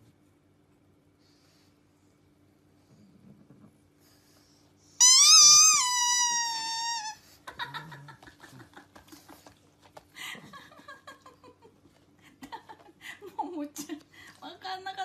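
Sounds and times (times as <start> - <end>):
dog whining: 5.0 - 7.2.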